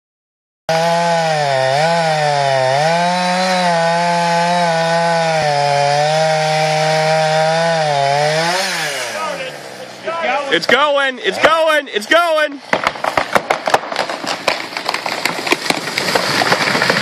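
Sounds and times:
chainsaw cutting wood: 0.7s - 17.0s.

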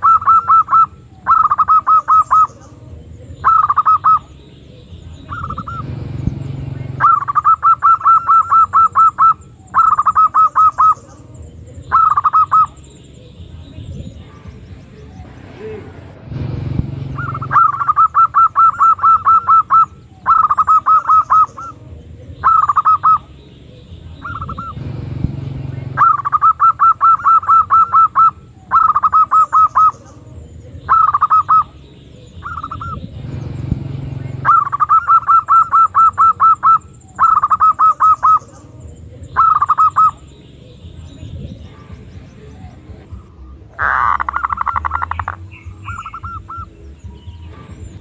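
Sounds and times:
dove cooing: 0.0s - 6.0s, 6.9s - 12.8s, 17.1s - 23.3s, 24.1s - 24.9s, 25.9s - 33.5s, 34.3s - 40.8s, 41.5s - 47.7s
low rumble: 5.1s - 7.2s, 13.5s - 17.8s, 24.1s - 26.3s, 32.6s - 35.1s.

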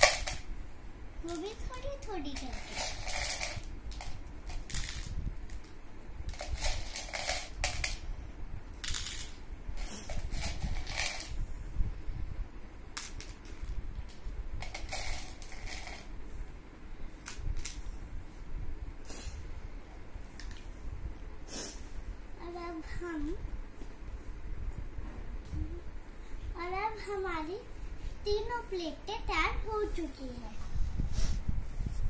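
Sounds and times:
plastic pieces rattling: 2.3s - 5.7s, 6.3s - 8.0s, 8.8s - 9.4s, 10.1s - 11.4s, 13.0s - 16.1s.

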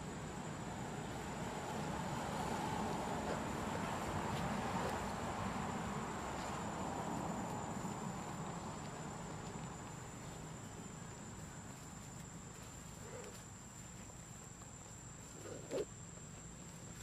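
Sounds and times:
insects droning high-pitched: 0.0s - 17.0s
low background noise: 0.0s - 17.0s.

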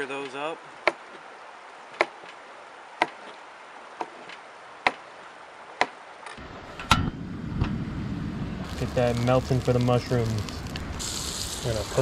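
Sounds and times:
steady low noise: 6.4s - 12.0s.

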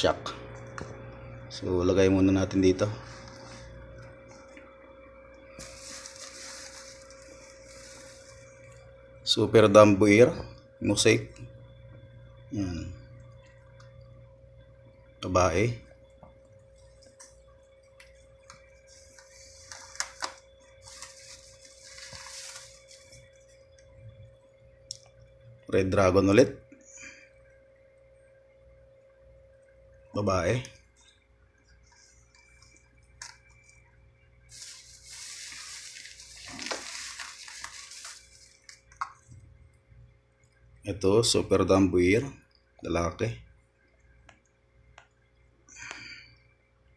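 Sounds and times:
faint steady hum: 0.0s - 46.9s
plastic bag crinkling: 5.6s - 8.9s, 19.1s - 23.6s, 34.5s - 39.4s.

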